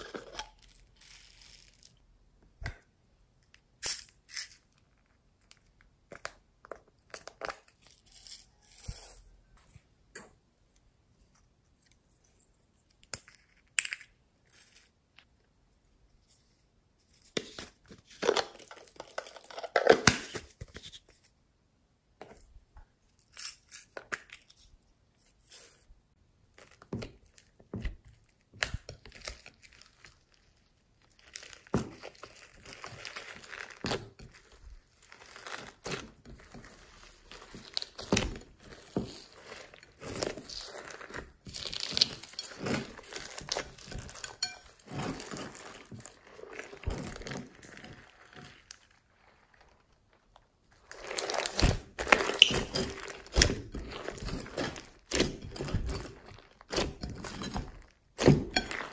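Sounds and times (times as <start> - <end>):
slime crackling and squishing: 26.4 - 58.9.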